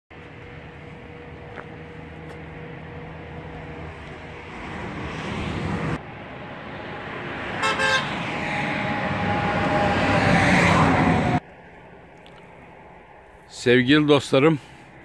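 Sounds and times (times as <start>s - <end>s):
motor vehicle approaching: 0.1s - 15.0s
car horn toots: 7.6s - 8.9s.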